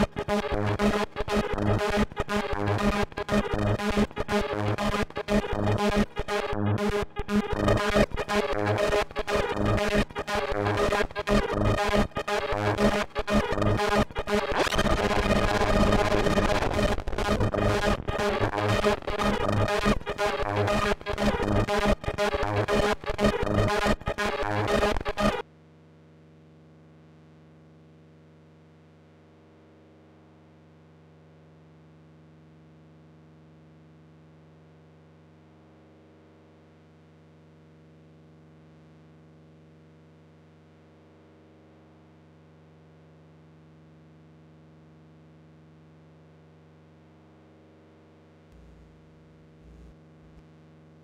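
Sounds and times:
distorted glitchy synthesizer: 0.0s - 25.4s, 48.5s - 50.4s
faint low hum: 48.5s - 50.5s.

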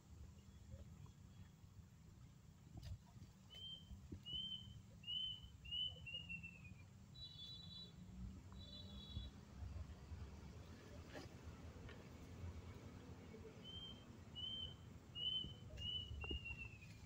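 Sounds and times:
small bird chirping: 3.5s - 9.4s, 13.6s - 17.0s.

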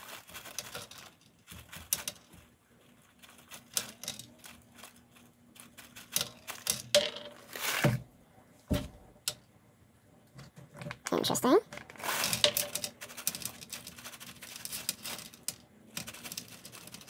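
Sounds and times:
chickpeas clattering on metal tray: 0.0s - 2.5s, 3.2s - 7.8s, 11.8s - 17.0s.

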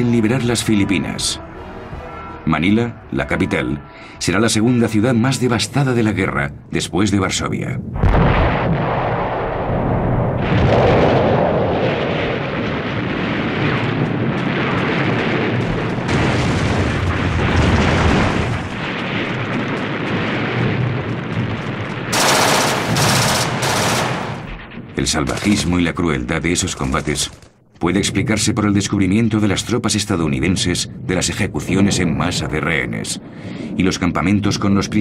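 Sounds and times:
low rumble of battle: 6.1s - 35.0s
machine-gun fire: 22.1s - 24.7s.

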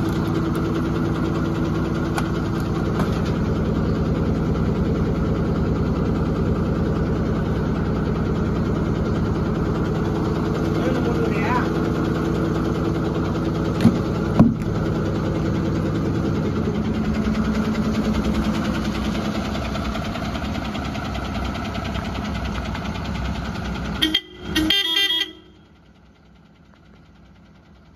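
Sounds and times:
diesel truck engine idling: 0.0s - 27.9s
sharp knocks: 13.8s - 14.8s
truck horn pulsing blast: 23.9s - 25.8s.

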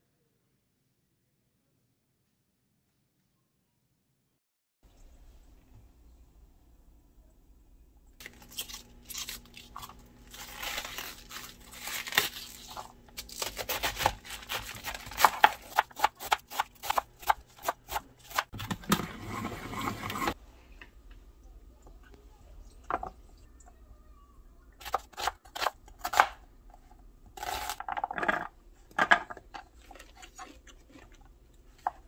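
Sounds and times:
cabbage leaves tearing: 8.2s - 17.0s
knife chopping on cutting board: 13.5s - 18.5s.

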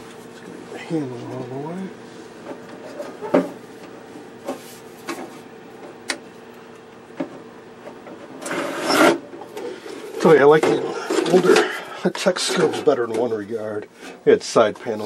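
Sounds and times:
metal cabinet scraping: 8.3s - 9.2s, 10.2s - 13.2s.

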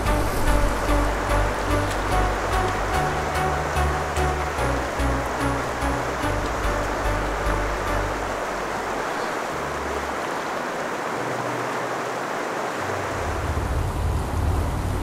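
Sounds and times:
low rumble: 0.0s - 9.0s
river water rushing over rocks: 0.0s - 15.0s.

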